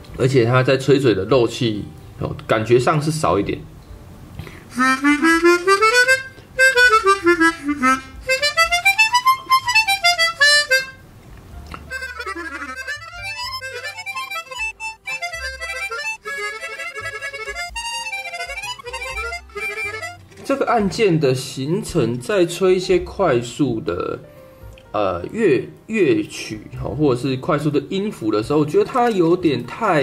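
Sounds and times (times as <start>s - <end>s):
harmonica playing scales: 4.6s - 11.0s, 11.8s - 20.4s.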